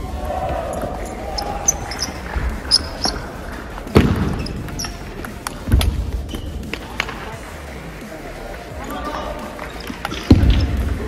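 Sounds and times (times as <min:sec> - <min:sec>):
heavy thuds: 0:01.9 - 0:04.8.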